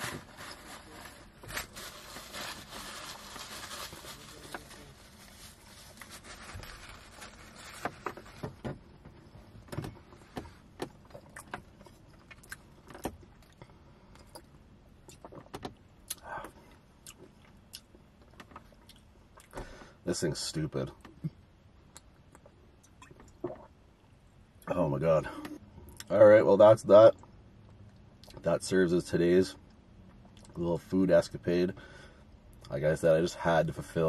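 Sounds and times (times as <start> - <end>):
paper wrappers crinkling: 0.0 - 8.5.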